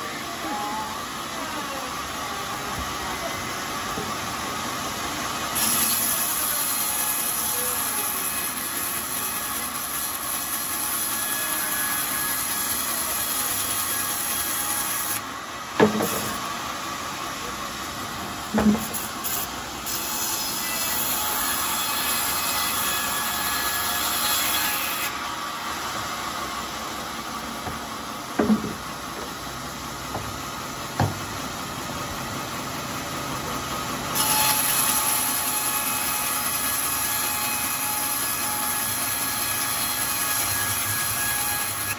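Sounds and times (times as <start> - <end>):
band saw running with hiss: 0.0 - 41.9
sharp wooden knocks: 28.4 - 28.8, 31.0 - 31.3.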